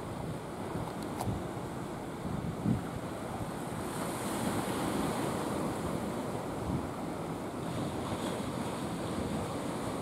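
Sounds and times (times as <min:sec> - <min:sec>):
wind buffeting microphone: 0:02.1 - 0:10.0.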